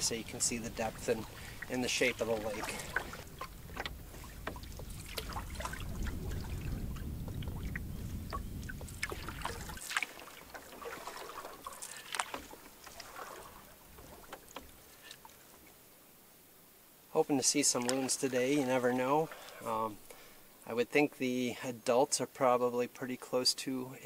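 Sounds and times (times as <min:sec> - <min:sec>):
paddle dipping through water: 0:00.0 - 0:15.8, 0:17.3 - 0:20.5
water drips and small splashes: 0:00.0 - 0:15.9, 0:17.3 - 0:20.4
low rumble: 0:03.1 - 0:09.8.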